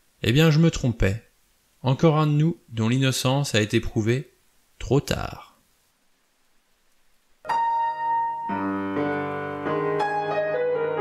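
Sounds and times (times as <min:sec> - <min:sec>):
piano chords: 0:07.4 - 0:11.0.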